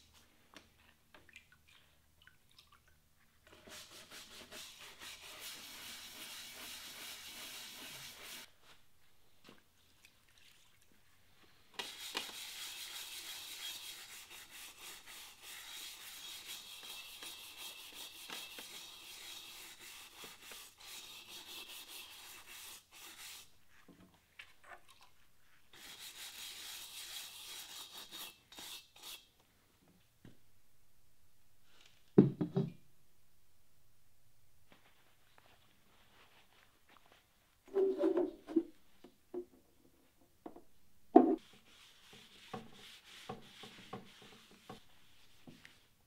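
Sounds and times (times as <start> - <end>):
scrub brush scrubbing a pot: 3.5 - 8.6, 11.8 - 23.5, 41.4 - 45.8.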